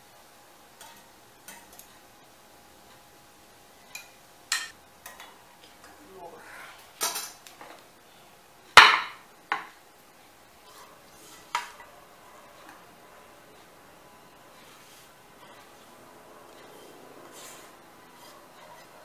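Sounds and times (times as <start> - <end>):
utensils and dishes clinking: 3.8 - 6.0, 7.0 - 7.5, 10.6 - 13.7.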